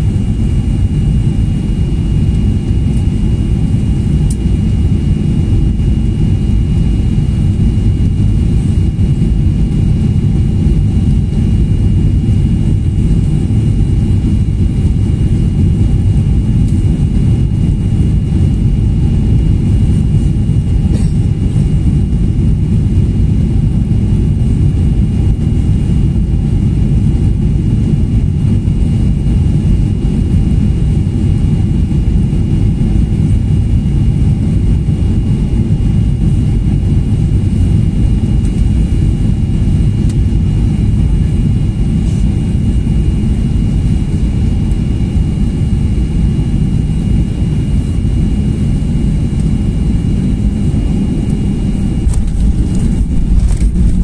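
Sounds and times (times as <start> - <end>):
airflow and jet engine rush: 0.0 - 54.0
faint steady whine: 0.0 - 54.0.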